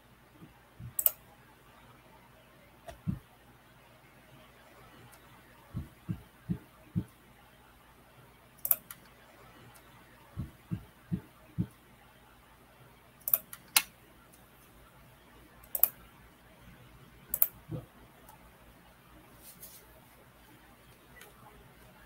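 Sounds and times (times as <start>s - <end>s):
background hum: 0.0s - 22.0s
soft low thumps: 0.8s - 1.0s, 2.9s - 3.2s, 5.7s - 7.1s, 10.4s - 11.7s, 17.7s - 17.9s
computer mouse clicking: 0.8s - 1.2s, 8.6s - 9.1s, 13.2s - 14.4s, 15.6s - 16.0s, 17.3s - 18.4s.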